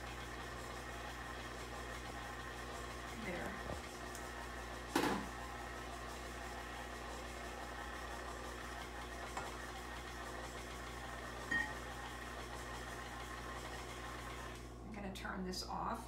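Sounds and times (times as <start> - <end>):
stand mixer running: 0.0 - 14.8.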